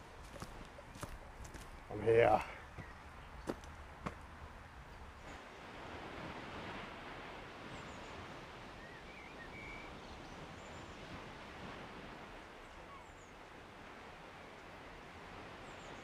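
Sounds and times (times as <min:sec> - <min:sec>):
faint wind hiss: 0:00.0 - 0:16.0
faint bird chirps: 0:08.8 - 0:11.1, 0:12.6 - 0:13.4.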